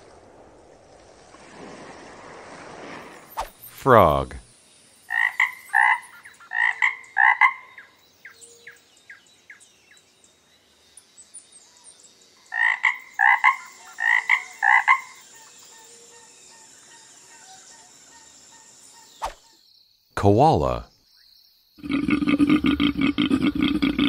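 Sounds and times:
frog croaking: 5.1 - 8.4, 12.5 - 15.4, 21.8 - 24.0.

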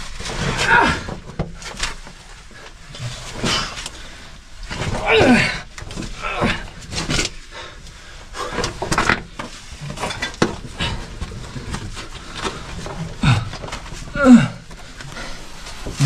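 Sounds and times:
body scraping over rock: 0.0 - 16.0
person grunting: 13.2 - 14.6.

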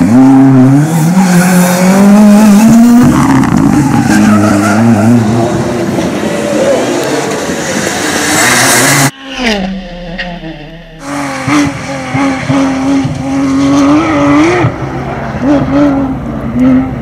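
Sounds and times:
high-revving engine: 0.0 - 17.0
rally car engine at full throttle: 0.0 - 17.0
car engine slowing down: 6.0 - 13.8.

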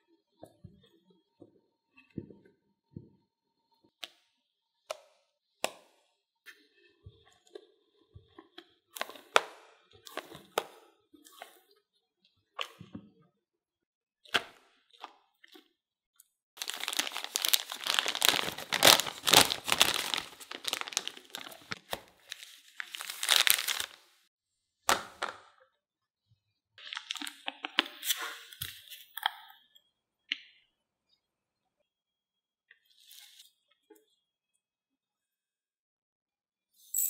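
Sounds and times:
plastic bag crinkling: 16.6 - 24.1.

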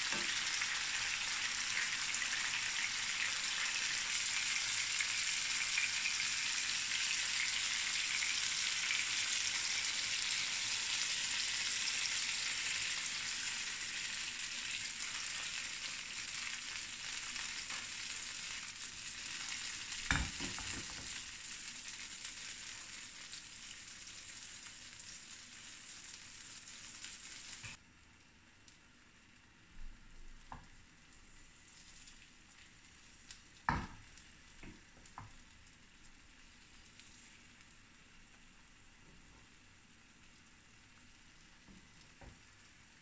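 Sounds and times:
omelette sizzling in frying pan: 0.0 - 43.0
spatula knocking on pan: 33.7 - 34.0.

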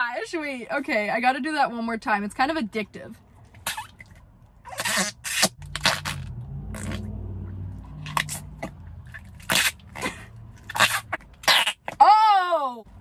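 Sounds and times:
putty buzzing fart noise: 4.7 - 7.1.

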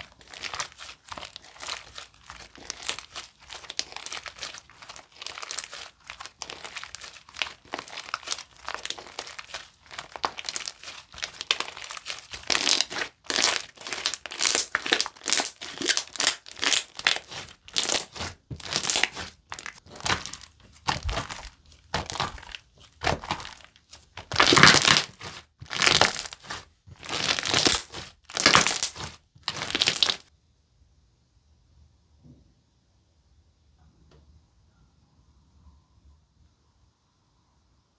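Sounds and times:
slime squishing and crackling: 0.0 - 30.3.

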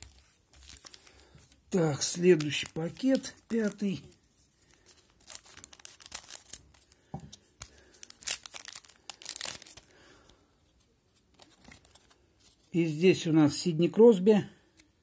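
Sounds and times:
foil wrapper tearing and crinkling: 0.0 - 4.2, 4.8 - 9.9.

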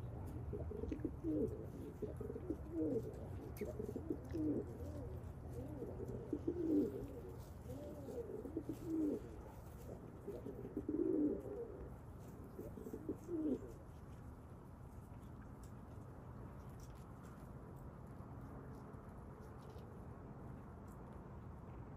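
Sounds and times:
pigeons cooing: 0.0 - 13.8.

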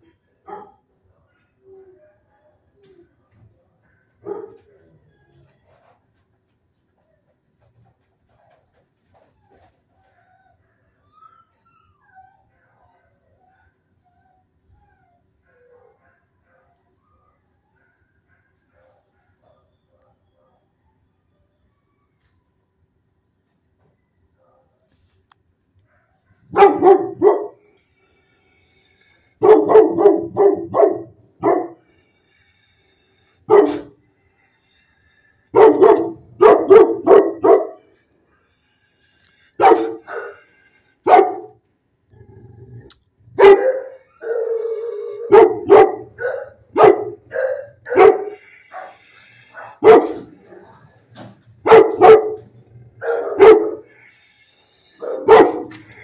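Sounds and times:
dog barking: 0.5 - 0.8, 4.2 - 4.7, 25.9 - 27.6, 29.4 - 31.8, 33.5 - 34.0, 35.5 - 37.9, 39.6 - 40.4, 41.1 - 41.6, 43.4 - 49.0, 49.6 - 50.4, 51.6 - 53.9, 55.0 - 55.8.

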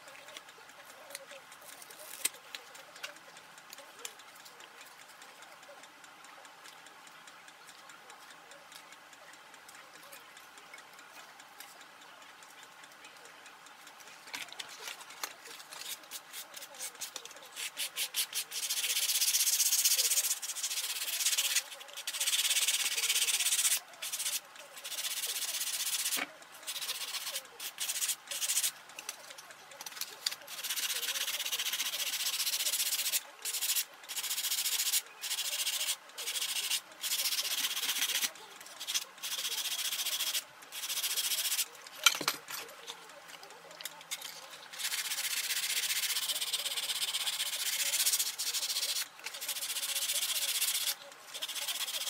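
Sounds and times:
hand sanding hiss: 15.8 - 28.7, 30.5 - 41.6, 44.8 - 52.0.

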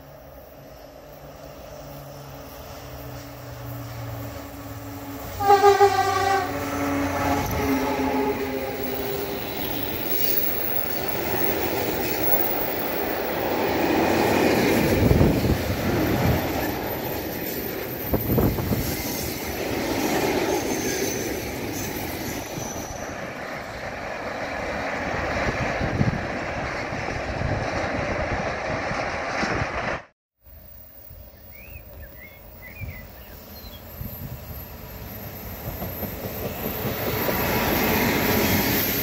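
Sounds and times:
train horn: 3.2 - 9.4
train wheels rolling and rattling: 6.6 - 30.0, 34.2 - 39.0.

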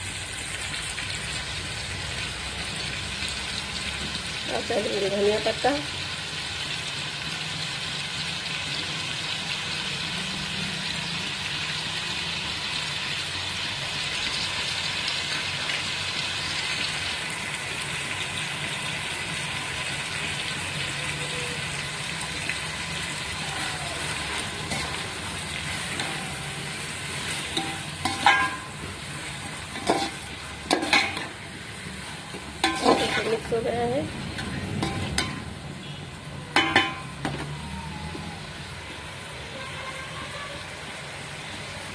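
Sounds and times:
food sizzling in hot oil: 0.0 - 41.9
metal spatula scraping pot: 24.3 - 31.4, 32.6 - 33.7.

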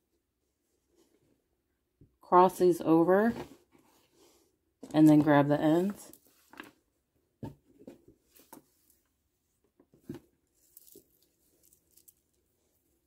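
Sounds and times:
plastic beads clicking and rustling: 10.5 - 12.4.

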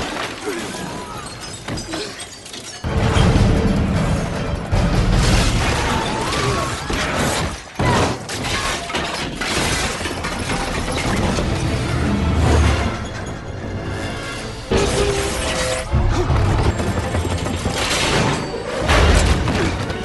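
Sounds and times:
shattering debris: 0.0 - 12.0
train crash: 2.7 - 6.7.

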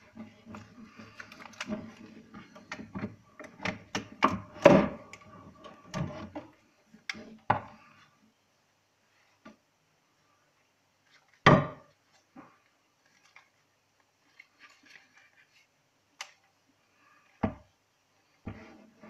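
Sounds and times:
handling rustle: 11.0 - 16.5.

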